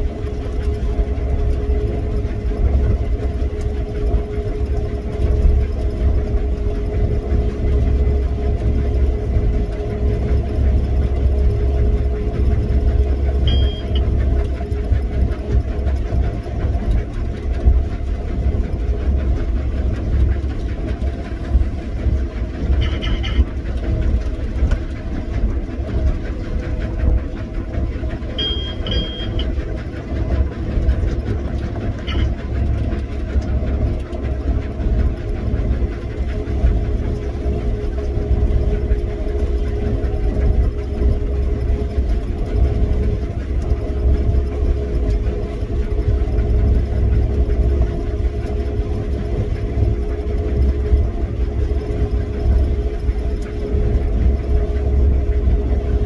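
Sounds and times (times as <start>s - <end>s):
low engine drone: 0.0s - 56.0s
short high electronic beeps: 13.5s - 14.0s, 28.4s - 29.4s.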